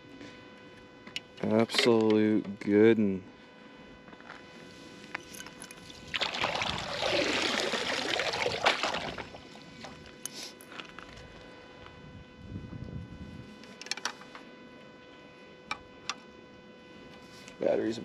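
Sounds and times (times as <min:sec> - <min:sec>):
water splashing and sloshing: 0:05.8 - 0:10.1.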